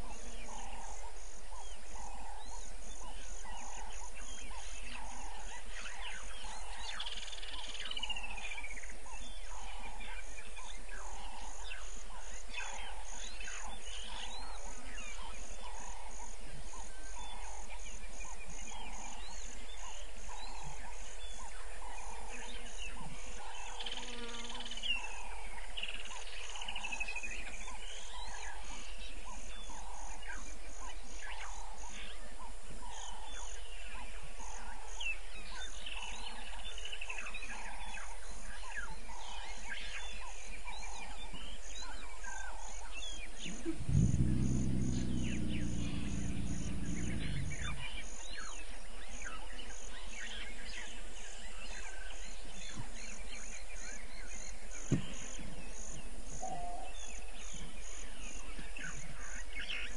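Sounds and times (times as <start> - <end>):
low pulsing frog call: 0.0 - 8.7, 42.2 - 49.6
high insect chirp: 0.0 - 59.9
descending bird calls: 41.9 - 50.4.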